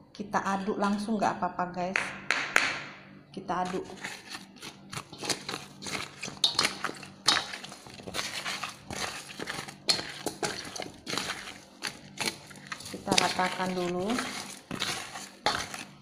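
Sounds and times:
sugared fruit crunching in bowl: 3.6 - 16.0.

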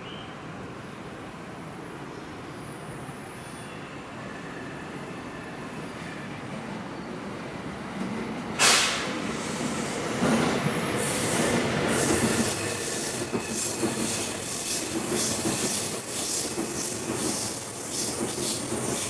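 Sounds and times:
rumble of train cars: 0.0 - 19.0
train wheels clacking over rail joints: 8.6 - 9.2, 11.9 - 19.0.

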